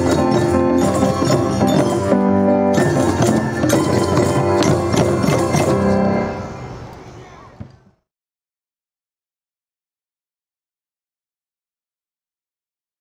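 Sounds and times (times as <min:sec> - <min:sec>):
pitched percussion ringing notes: 0:00.0 - 0:06.9
hand drum strokes: 0:02.8 - 0:06.2.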